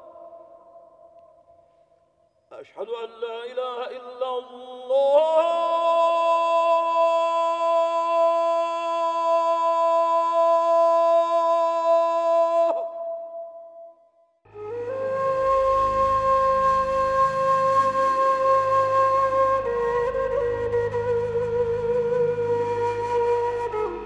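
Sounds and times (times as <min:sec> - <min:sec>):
man chanting call to prayer: 0:02.5 - 0:13.4.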